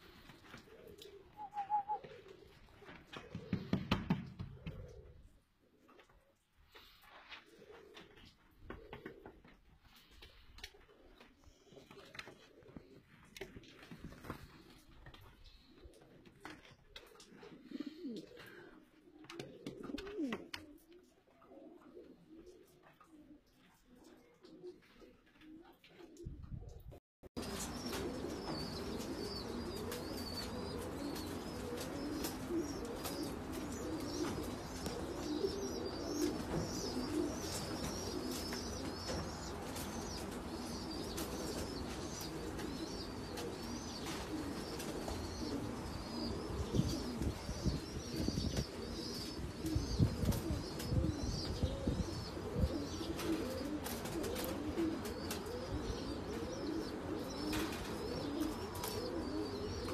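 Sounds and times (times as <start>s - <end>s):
pigeons cooing: 0.0s - 6.1s, 6.7s - 26.4s, 27.4s - 59.9s
small birds chirping: 27.4s - 59.9s.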